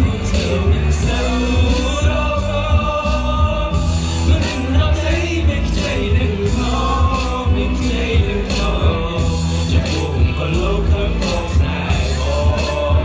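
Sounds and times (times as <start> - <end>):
heavy bass beat: 0.0 - 13.0
man singing into microphone: 0.0 - 13.0.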